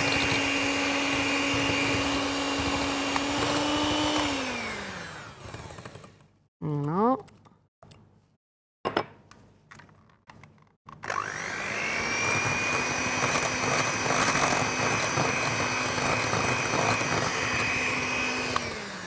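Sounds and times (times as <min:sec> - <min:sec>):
electric hand mixer whining: 0:00.0 - 0:06.3, 0:11.0 - 0:19.0.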